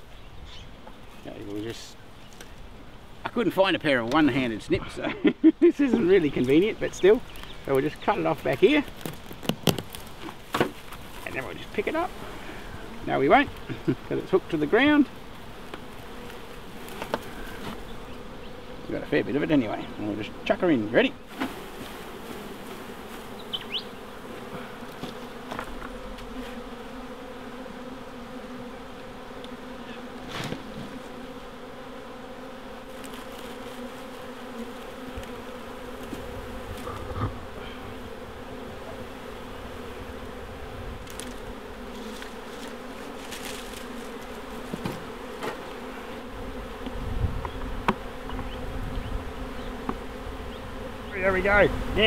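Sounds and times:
bee swarm buzzing: 0.0 - 52.0
twigs knocking and rustling: 6.4 - 11.3, 41.0 - 45.6.

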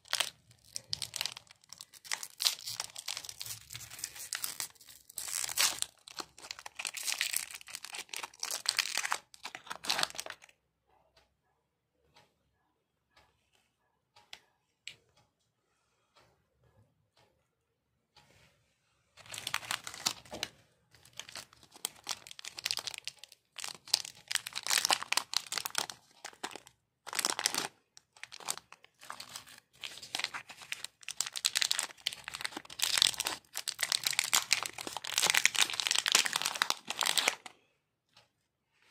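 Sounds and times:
wrappers crinkling and tearing: 0.0 - 10.4, 19.2 - 20.4, 21.0 - 37.5.

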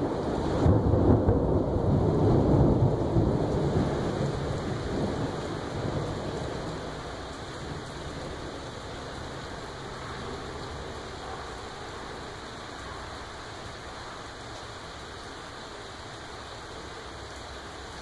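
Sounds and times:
thunder rumble: 0.0 - 13.1
heavy rain falling: 0.0 - 18.0.

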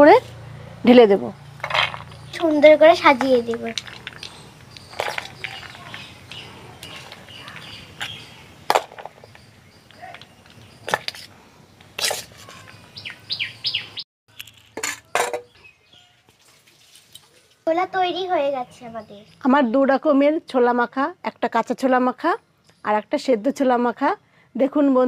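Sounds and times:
bird chirps: 1.3 - 11.8, 12.4 - 14.4, 15.0 - 16.3, 18.4 - 20.0
spoon scraping steel bowl: 12.0 - 12.6.

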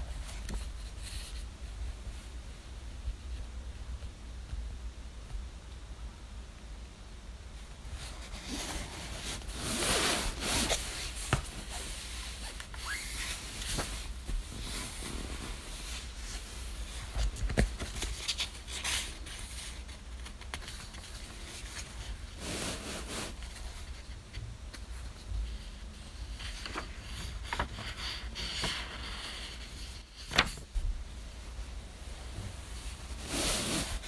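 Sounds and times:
paperback book being handled: 0.0 - 2.2, 7.9 - 31.2
duvet rustling: 7.6 - 24.2, 29.4 - 34.0.

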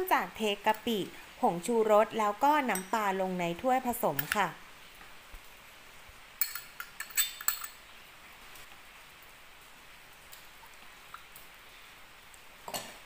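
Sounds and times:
glass cup clinking on glass bowl: 6.4 - 7.8.

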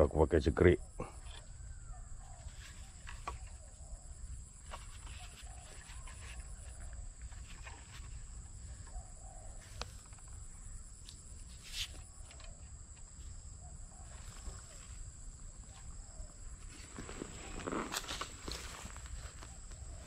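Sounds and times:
faint bird calls: 0.8 - 20.0
rustling in dry grass: 2.2 - 9.0, 14.0 - 20.0.

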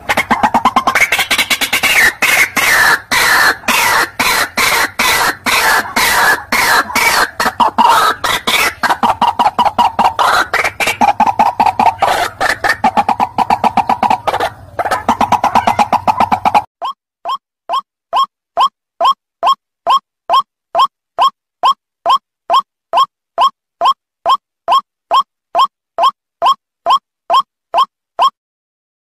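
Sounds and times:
waterhen calling harsh notes: 0.0 - 16.7.

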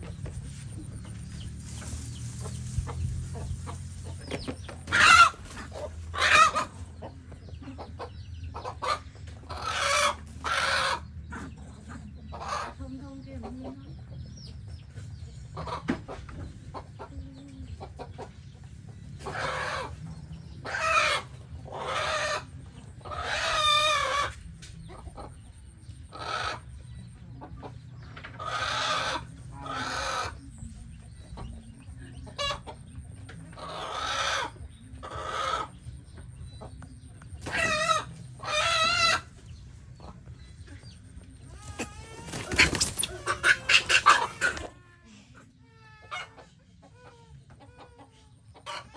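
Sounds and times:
hen squawking: 41.6 - 44.7.

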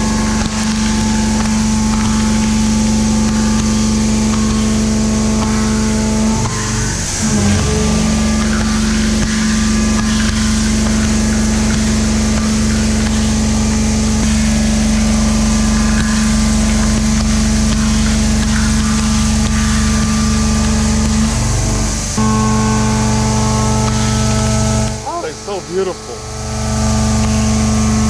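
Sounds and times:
milling cutter singing tone: 6.0 - 9.7.

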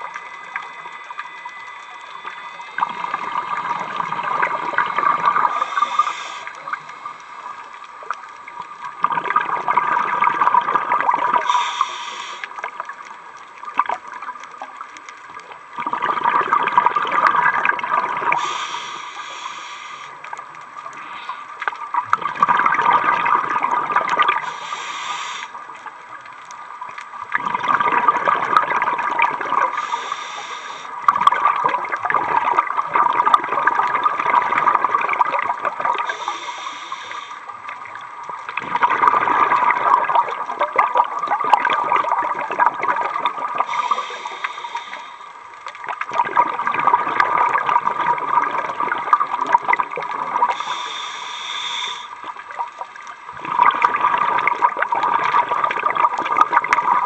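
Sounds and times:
regulator inhalation hiss: 0.0 - 7.8, 11.4 - 12.7, 18.3 - 20.3, 24.4 - 25.8, 29.6 - 31.0, 36.0 - 37.7, 43.6 - 45.5, 50.5 - 52.3
exhaled bubbles rushing: 0.0 - 11.5, 15.4 - 18.6, 21.8 - 24.5, 27.2 - 29.8, 31.0 - 44.6, 45.7 - 50.7, 52.2 - 57.0.

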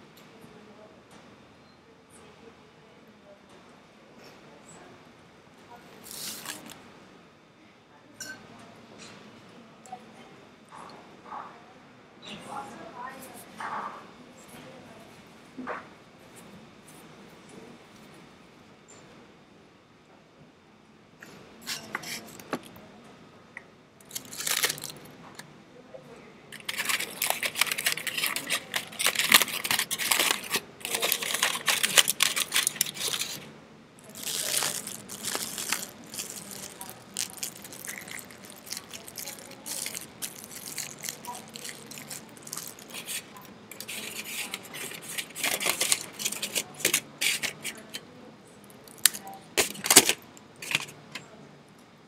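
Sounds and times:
puppies scratching and rattling toys: 26.6 - 33.4, 34.0 - 48.0, 48.9 - 51.1.

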